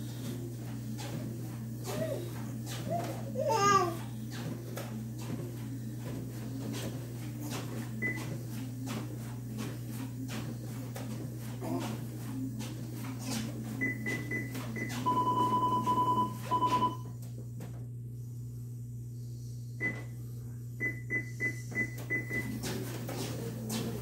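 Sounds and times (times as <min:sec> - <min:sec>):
steady low hum: 0:00.0 - 0:24.0
treadmill console beeping: 0:04.3 - 0:17.1, 0:19.8 - 0:20.1, 0:20.8 - 0:23.9.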